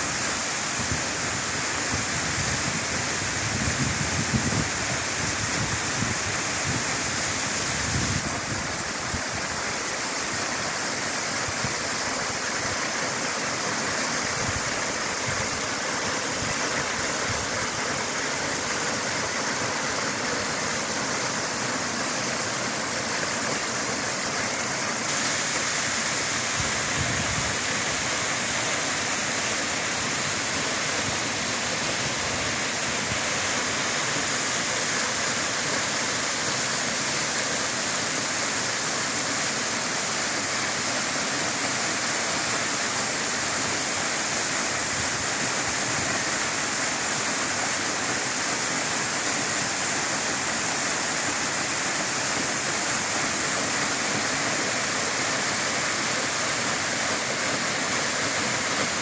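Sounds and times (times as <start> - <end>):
waterfall pouring over rock: 0.0 - 59.0.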